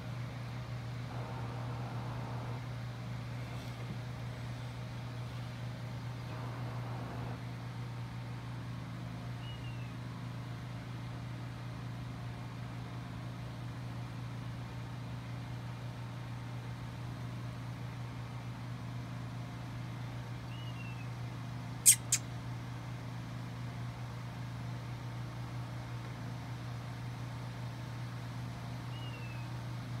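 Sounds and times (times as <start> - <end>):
faint short chirps: 21.8 - 22.3.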